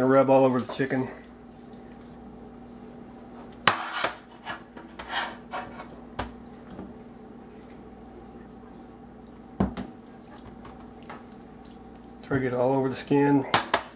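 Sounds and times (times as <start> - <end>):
faint steady hum: 0.0 - 13.9.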